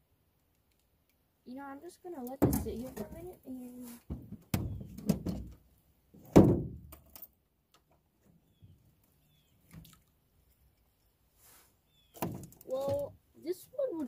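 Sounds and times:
loud hollow thump: 0:02.4 - 0:03.2, 0:06.2 - 0:06.9
short bird chirps: 0:11.8 - 0:12.2.

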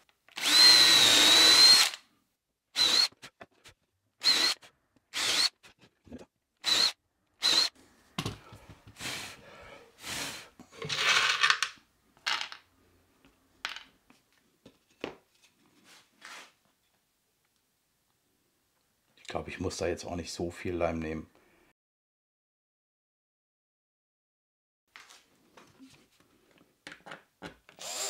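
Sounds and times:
cordless drill whirring: 0:00.3 - 0:02.0, 0:02.8 - 0:03.2, 0:04.2 - 0:05.6, 0:06.6 - 0:07.8, 0:27.8 - 0:28.0.

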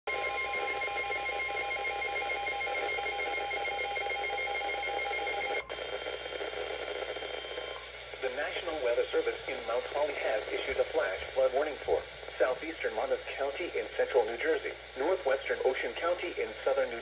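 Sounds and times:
radio static hiss: 0:05.3 - 0:17.0.

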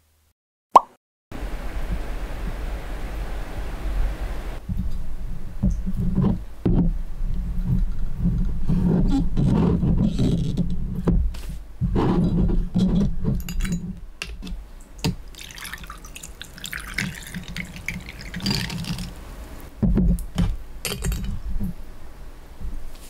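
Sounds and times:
water running from tap: 0:15.0 - 0:19.2.

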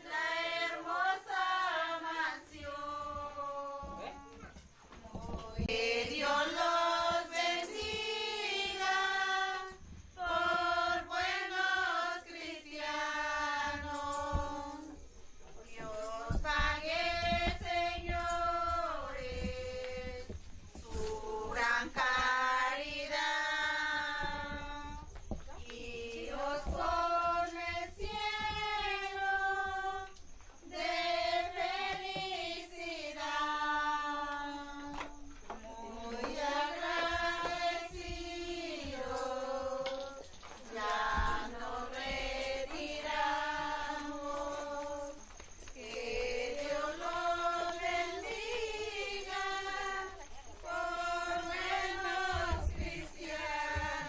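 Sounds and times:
women and children singing: 0:00.0 - 0:54.0.

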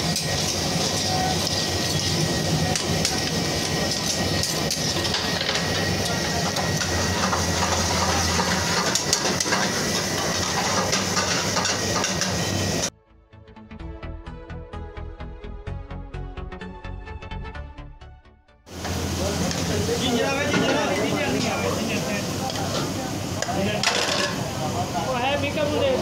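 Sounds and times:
gas burners rumbling: 0:00.0 - 0:12.9, 0:18.7 - 0:26.0
metal spatula scraping wok: 0:00.0 - 0:12.9
oil sizzling: 0:00.0 - 0:12.9, 0:18.7 - 0:26.0.

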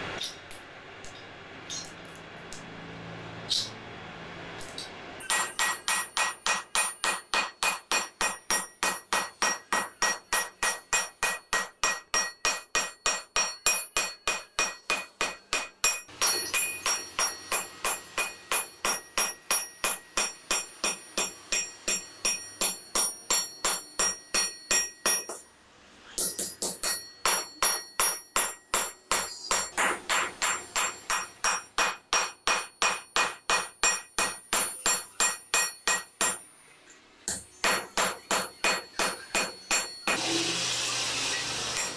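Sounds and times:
hammer ringing on anvil: 0:05.2 - 0:25.5, 0:26.2 - 0:36.5, 0:37.3 - 0:40.3.

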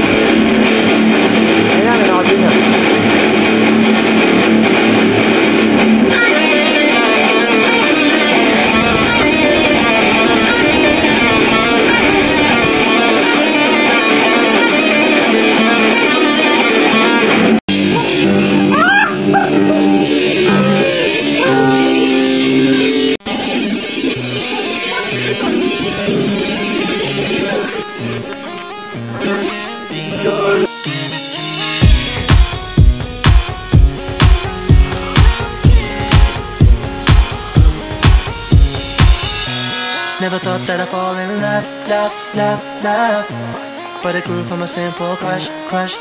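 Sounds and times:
electric guitars playing: 0:00.0 - 0:46.0.

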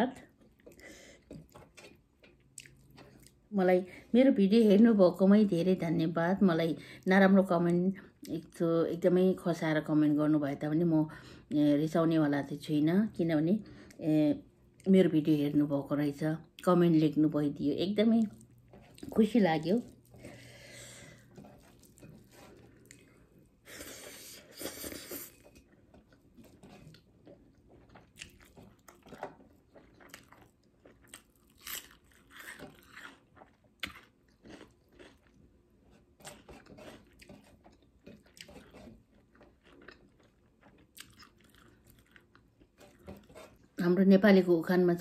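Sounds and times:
chewing and crunching: 0:00.4 - 0:03.4, 0:18.2 - 0:23.5, 0:25.3 - 0:43.8
fingers mixing rice on steel plate: 0:35.9 - 0:39.5.

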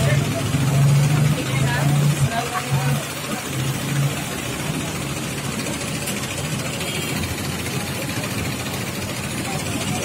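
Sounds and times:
spray hissing from nozzles: 0:00.0 - 0:10.0
sprayer pump engine running: 0:00.0 - 0:10.0.

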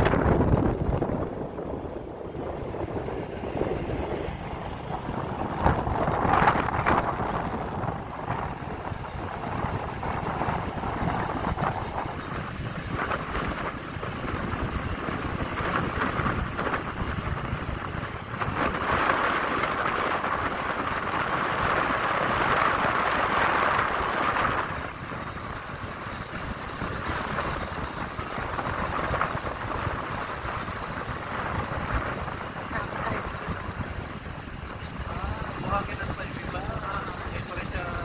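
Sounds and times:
road and engine noise: 0:00.0 - 0:38.0
wind rushing over microphone: 0:00.0 - 0:38.0.

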